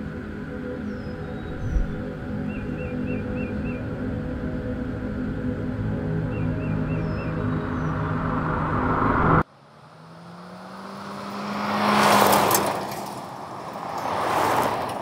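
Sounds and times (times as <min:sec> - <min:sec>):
background music: 0:00.0 - 0:09.4
vehicle passing on gravel: 0:07.0 - 0:15.0.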